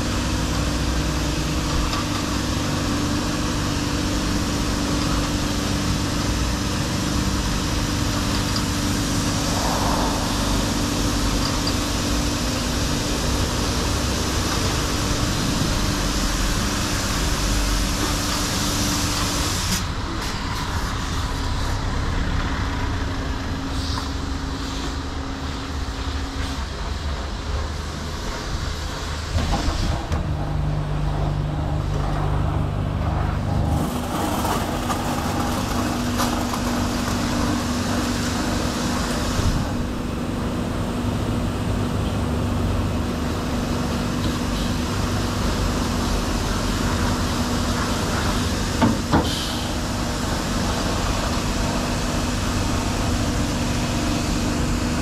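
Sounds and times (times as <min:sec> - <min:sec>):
pump and motors humming: 0:00.0 - 0:55.0
water jets hissing on car: 0:02.4 - 0:20.0, 0:33.7 - 0:40.0, 0:43.3 - 0:55.0.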